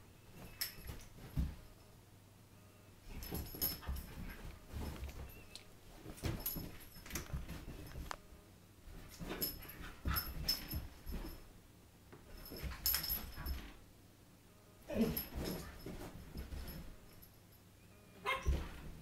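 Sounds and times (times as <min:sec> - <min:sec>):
collar tags jingling: 0:03.0 - 0:08.1, 0:09.0 - 0:11.5, 0:12.3 - 0:13.8, 0:14.9 - 0:19.0
dog whining: 0:18.2 - 0:18.8.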